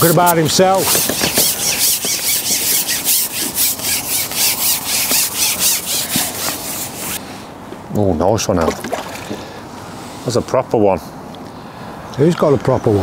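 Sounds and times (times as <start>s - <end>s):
rhythmic rasping strokes: 0.0s - 7.2s.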